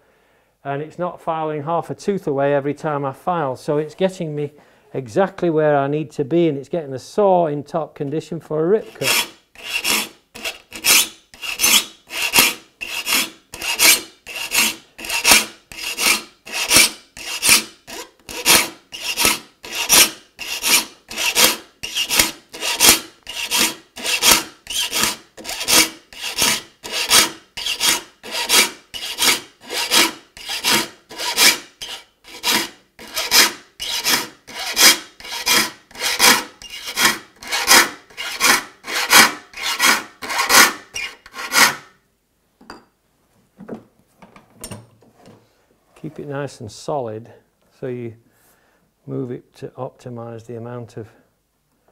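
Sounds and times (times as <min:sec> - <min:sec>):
file rasping on saw teeth: 0:08.8 - 0:41.9.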